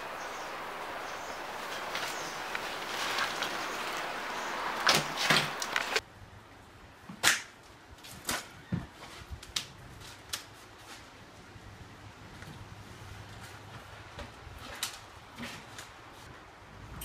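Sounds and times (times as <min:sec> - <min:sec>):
steady hiss: 0:00.0 - 0:06.0.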